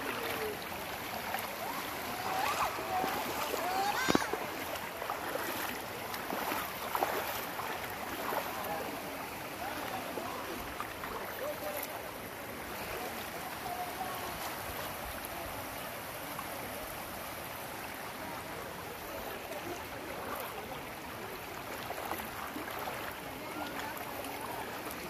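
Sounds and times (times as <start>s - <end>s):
creek water rippling over stones: 0.0s - 25.0s.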